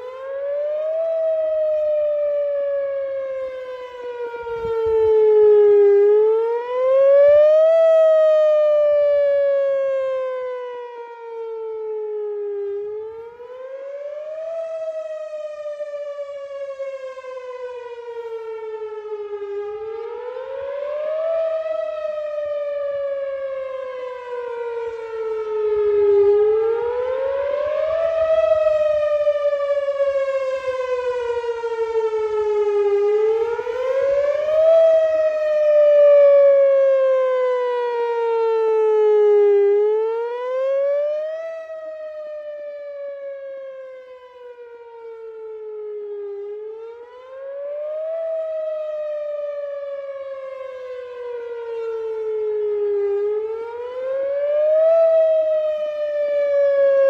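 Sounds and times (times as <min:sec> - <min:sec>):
warning siren wailing: 0:00.0 - 0:57.0.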